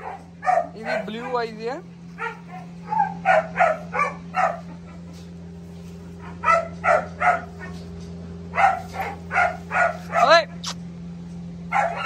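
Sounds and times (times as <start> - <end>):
dog barking: 0.0 - 1.6, 2.2 - 5.0, 6.2 - 7.9, 8.5 - 10.8, 11.7 - 12.0
steady low hum: 0.0 - 12.0.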